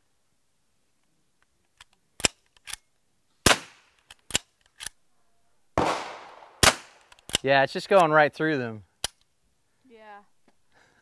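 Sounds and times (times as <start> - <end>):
rifle shot: 3.4 - 3.9, 5.8 - 7.0.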